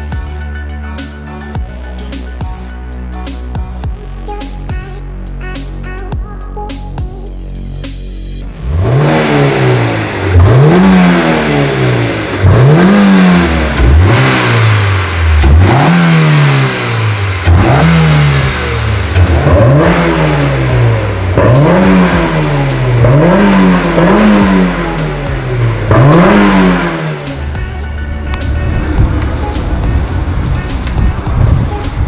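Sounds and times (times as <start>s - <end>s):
car engine revving: 8.2s - 32.0s.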